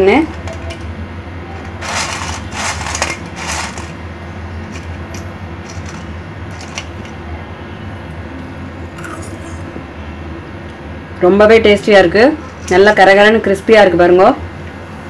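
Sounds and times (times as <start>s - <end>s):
steady low hum: 0.0s - 15.0s
crisp snack crunching: 1.7s - 4.0s.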